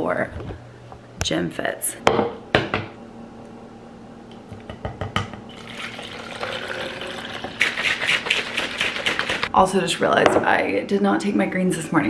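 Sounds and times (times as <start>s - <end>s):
water pouring into plastic bottle: 5.5s - 7.6s.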